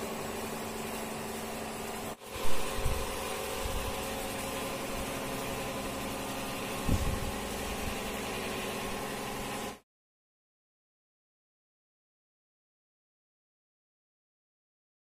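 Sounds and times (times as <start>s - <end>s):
mechanical hum: 0.0s - 9.8s.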